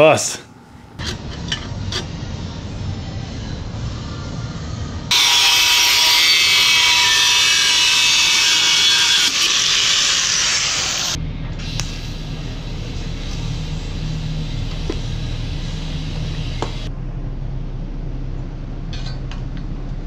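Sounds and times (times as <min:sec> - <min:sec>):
low rumble: 0:00.6 - 0:05.1, 0:11.0 - 0:20.0
power tool high-pitched whine: 0:05.1 - 0:16.9.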